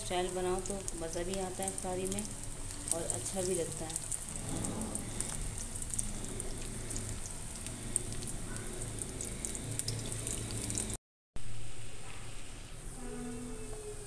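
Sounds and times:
deep-frying in hot oil sizzling: 0.0 - 11.0.

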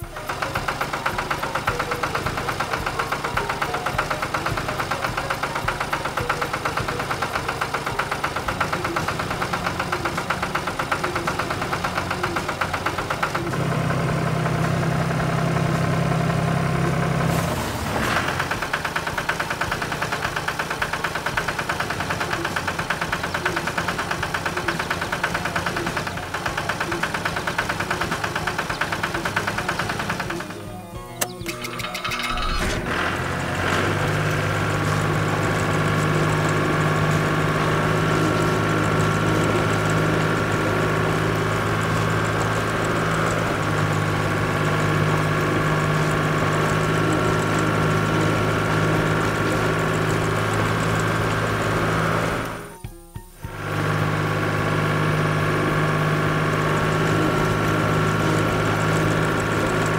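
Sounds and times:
tractor engine chugging: 0.0 - 59.9
sharp click: 31.1 - 32.9.

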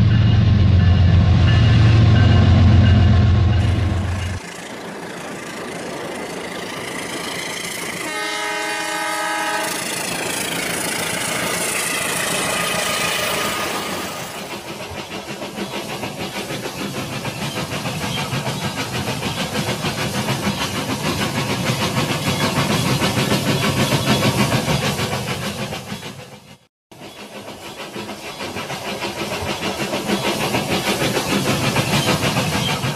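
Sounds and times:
toy train horn chord: 8.0 - 9.9.

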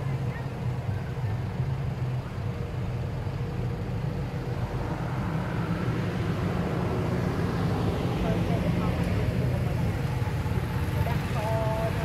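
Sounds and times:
low motor rumble: 0.0 - 12.0.

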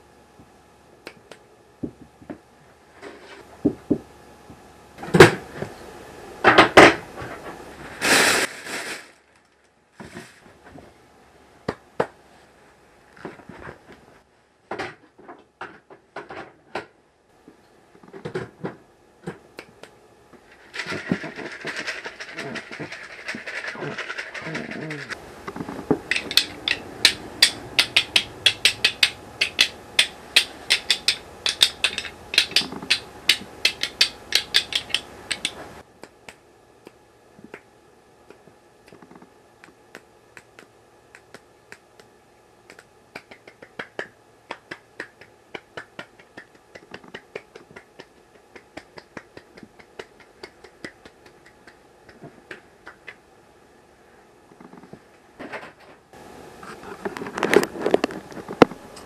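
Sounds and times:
sharp clicks: 25.5 - 37.6.

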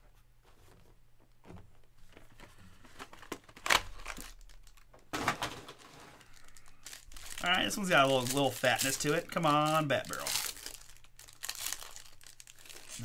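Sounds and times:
foil wrapper crinkling: 3.0 - 13.0.

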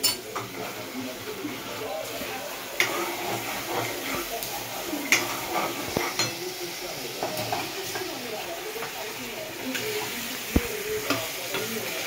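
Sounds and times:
utensils clinking on plates: 0.0 - 0.9, 2.2 - 6.6
metal spoon scraping a pan: 0.0 - 8.2
light sizzle: 0.0 - 12.0.

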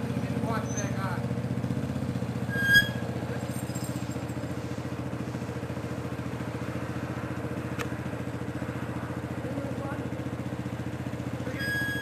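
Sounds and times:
small engine running: 0.0 - 12.0
high-pitched squeak: 0.6 - 1.0, 2.4 - 3.1, 11.5 - 12.0.

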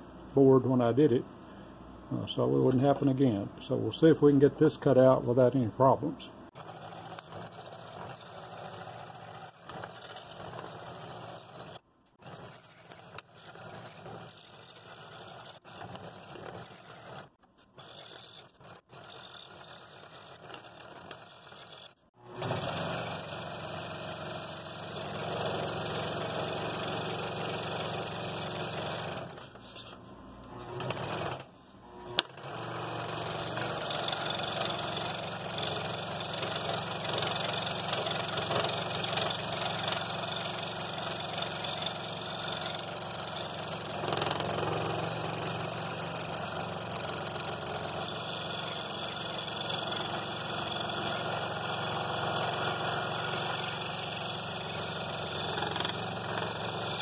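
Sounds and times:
scroll saw cutting wood: 4.9 - 57.0.

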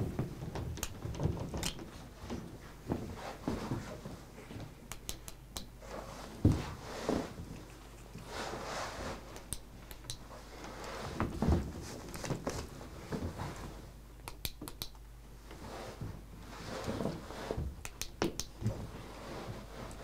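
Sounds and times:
sharp clicks: 4.9 - 5.7, 9.4 - 10.2, 14.2 - 15.0, 17.8 - 18.6.

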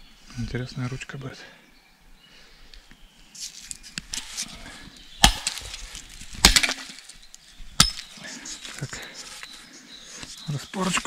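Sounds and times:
timber rustling and scraping: 3.3 - 7.2
hatchet striking wood: 5.2 - 5.6, 6.4 - 6.9, 7.8 - 8.1.

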